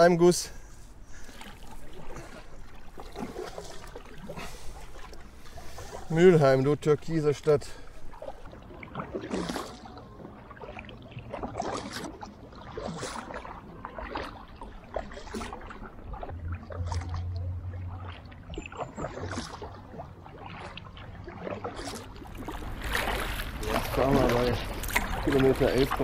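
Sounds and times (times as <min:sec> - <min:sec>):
low steady hum: 0:00.0 - 0:26.0
paddle splashing in water: 0:00.0 - 0:26.0
water running off paddle: 0:00.0 - 0:26.0.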